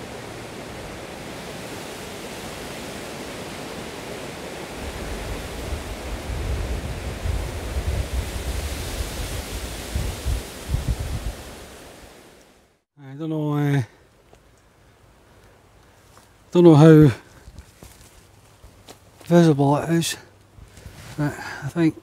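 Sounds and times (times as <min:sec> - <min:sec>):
wind gusts buffeting microphone: 0:00.0 - 0:12.2
rushing wind: 0:00.0 - 0:12.7.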